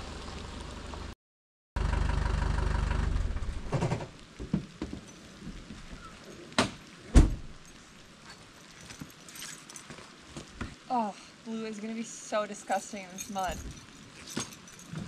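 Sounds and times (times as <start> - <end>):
truck engine idling: 1.8 - 3.7
truck door slamming: 6.6 - 7.5
truck door opening: 6.6 - 7.6.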